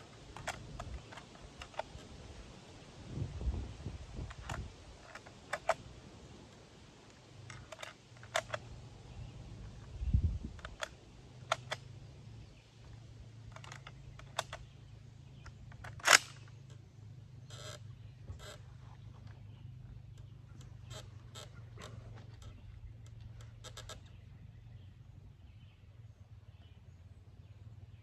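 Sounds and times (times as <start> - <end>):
faint low hum: 0.0 - 28.0
metallic clicks of rifle action: 0.1 - 2.1, 4.2 - 5.9, 7.1 - 11.9, 13.4 - 16.8, 18.4 - 18.6, 20.2 - 24.1
loud rifle snap: 15.8 - 16.5.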